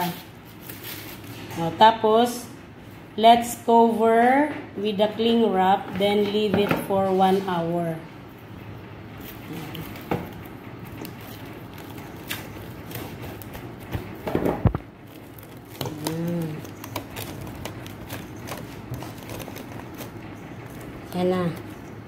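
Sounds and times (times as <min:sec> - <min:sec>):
cling wrap crinkling: 0:00.4 - 0:01.6, 0:09.2 - 0:14.2, 0:15.0 - 0:21.8.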